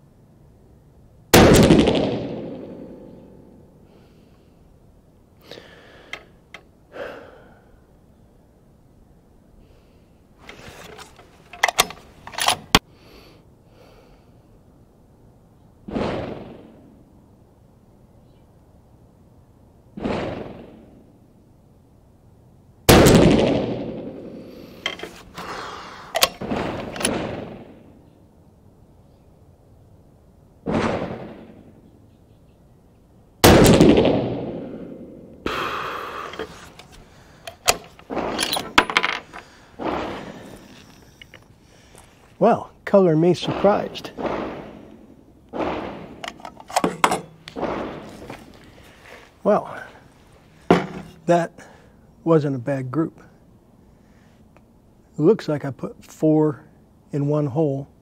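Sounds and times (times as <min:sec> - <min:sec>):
rifle shot echoing: 0:01.3 - 0:03.6, 0:15.9 - 0:17.0, 0:20.0 - 0:21.1, 0:22.9 - 0:24.6, 0:26.2 - 0:27.9, 0:30.6 - 0:31.8, 0:33.4 - 0:36.4, 0:39.5 - 0:40.6, 0:43.4 - 0:48.3
rifle bolt clicks and clacks: 0:10.5 - 0:12.8, 0:26.1 - 0:27.2, 0:36.3 - 0:39.5, 0:46.2 - 0:47.6.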